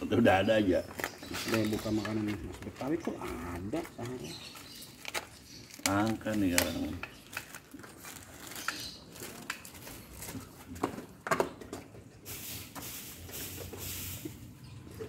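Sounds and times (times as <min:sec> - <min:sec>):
plastic bag rustling: 0:00.2 - 0:10.9.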